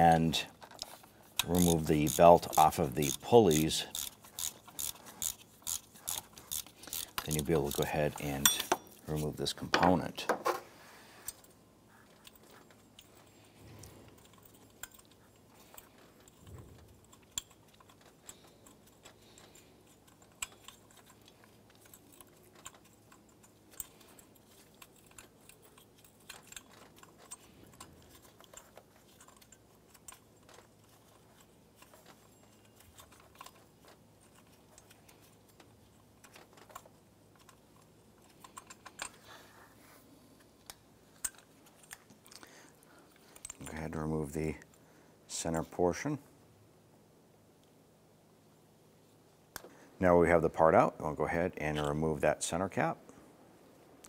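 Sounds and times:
metal parts clinking: 0:00.5 - 0:09.8, 0:12.1 - 0:39.4, 0:40.6 - 0:43.8.

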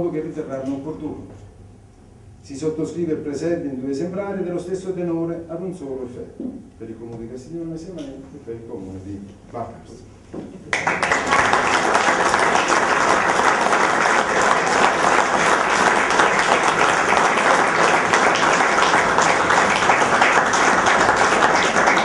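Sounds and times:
audience applause: 0:10.7 - 0:22.0.

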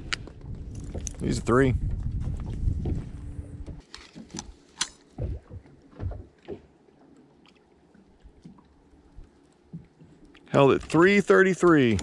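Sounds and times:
dull knocks and thumps: 0:05.2 - 0:06.7.

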